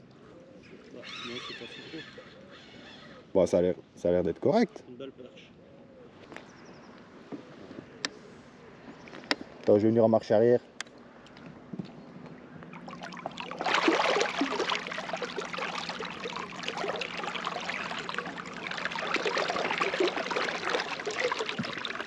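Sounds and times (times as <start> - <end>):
water sloshing and gurgling: 12.2 - 22.0.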